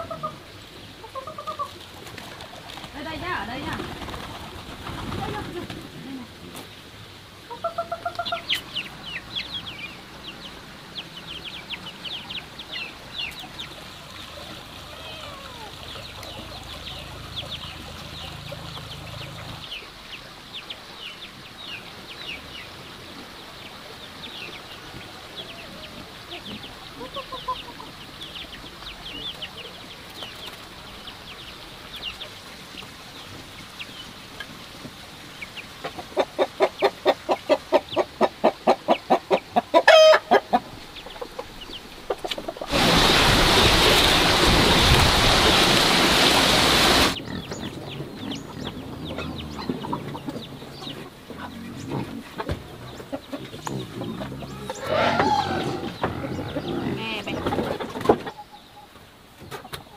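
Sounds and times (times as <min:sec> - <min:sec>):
hens clucking: 0:00.0 - 0:06.7, 0:07.4 - 0:19.9, 0:24.8 - 0:30.7, 0:35.4 - 0:43.1, 0:45.6 - 0:59.9
hen cackling squawk: 0:07.5 - 0:08.6, 0:36.2 - 0:40.7, 0:54.4 - 0:56.6.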